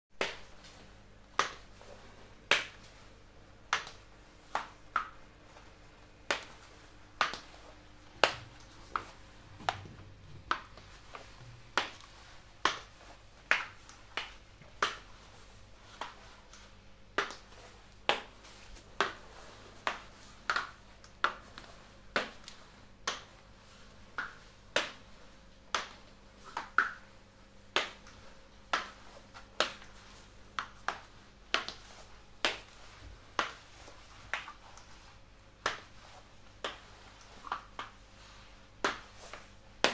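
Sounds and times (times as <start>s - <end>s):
heels clicking on tile floor: 0.2s - 15.2s.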